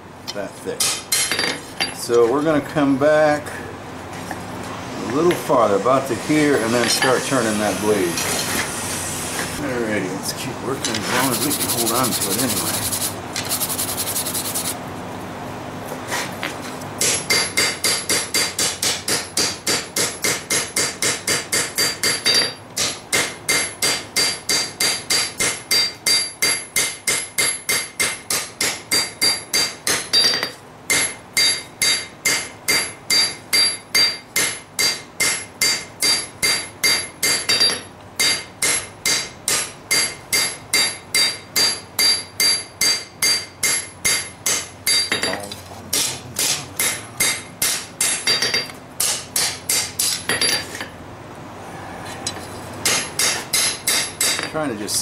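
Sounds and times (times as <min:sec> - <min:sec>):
hammer striking steel on anvil: 0:00.8 - 0:02.0, 0:17.0 - 0:50.9, 0:52.8 - 0:54.6.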